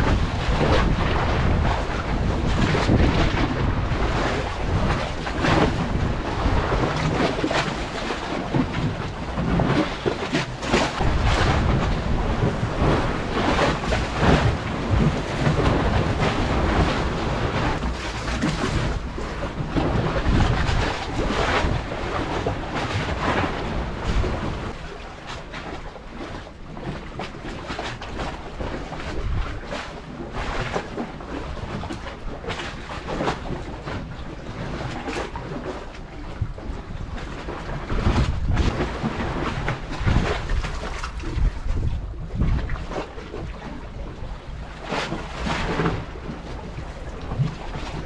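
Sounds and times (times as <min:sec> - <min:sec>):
sea waves against breakwater: 0:00.0 - 0:48.0
wind buffeting microphone: 0:00.0 - 0:48.0.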